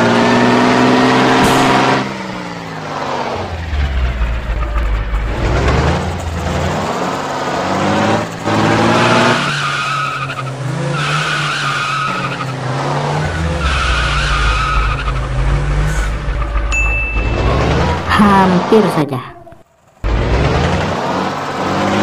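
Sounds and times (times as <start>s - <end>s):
truck engine: 0.0s - 22.0s
tyre squeals: 13.3s - 18.1s.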